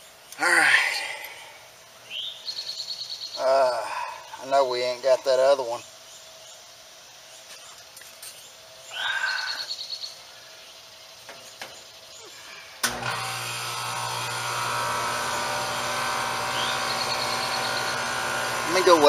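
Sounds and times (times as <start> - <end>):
bird chirp: 1.8 - 12.8, 16.5 - 18.1
brazing torch hissing: 12.8 - 19.0.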